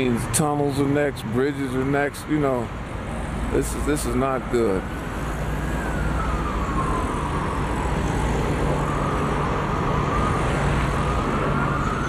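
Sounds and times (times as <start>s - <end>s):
city traffic noise: 0.0s - 12.0s
siren wailing: 3.5s - 12.0s.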